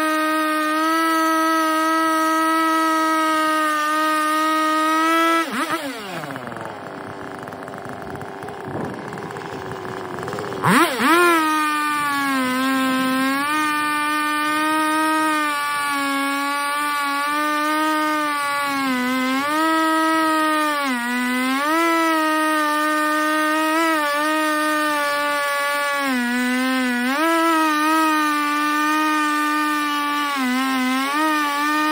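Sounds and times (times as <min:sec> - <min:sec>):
chainsaw cutting log: 0:00.0 - 0:31.9.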